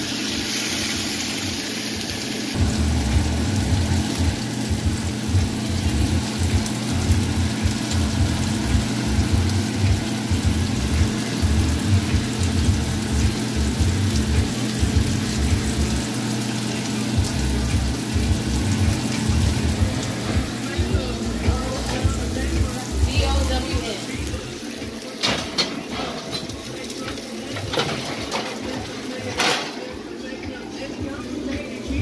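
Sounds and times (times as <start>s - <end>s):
fish sizzling in oil: 0.0s - 32.0s
music beat bass: 2.6s - 16.1s, 17.1s - 25.0s, 29.9s - 32.0s.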